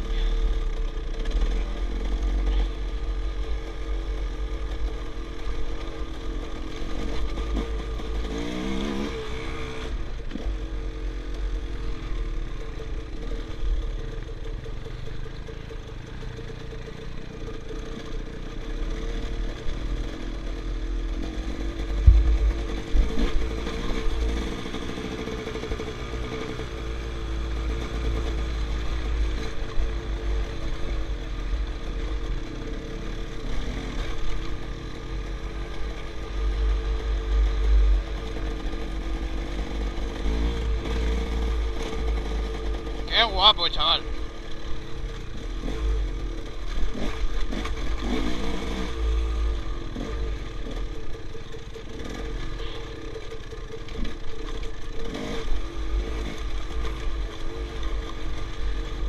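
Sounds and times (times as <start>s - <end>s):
dirt bike engine running: 0.0s - 59.0s
heavy thump: 22.0s - 23.2s.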